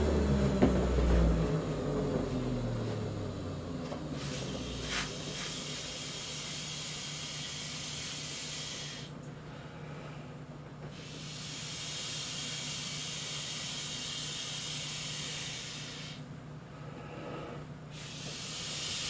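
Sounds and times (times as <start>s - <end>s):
vacuum motor hum: 0.0s - 9.3s, 10.7s - 16.2s, 17.9s - 19.0s
air rushing through hose: 4.1s - 9.2s, 10.9s - 16.2s, 17.9s - 19.0s.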